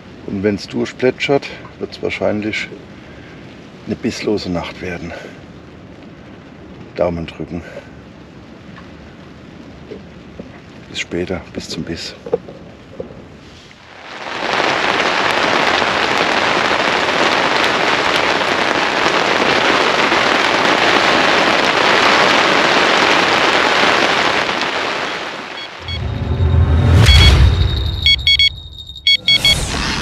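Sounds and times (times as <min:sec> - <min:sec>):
heavy rain on fabric tent: 0:00.0 - 0:26.4
deep low rumble: 0:25.8 - 0:30.0.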